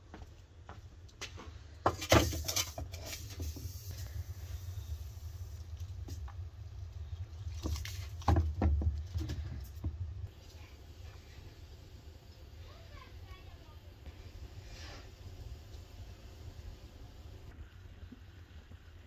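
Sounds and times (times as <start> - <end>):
low rumble: 3.6 - 12.7.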